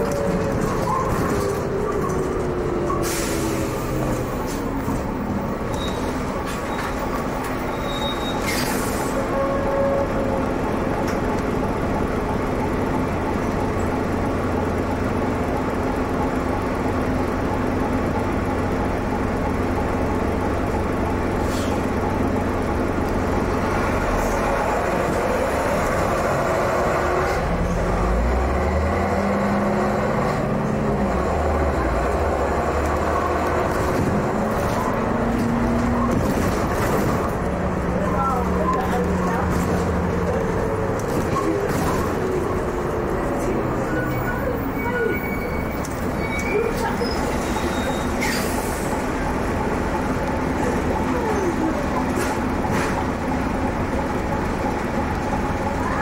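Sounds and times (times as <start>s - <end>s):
bus diesel engine running: 0.0s - 56.0s
bus bodywork knocks: 33.7s - 37.3s.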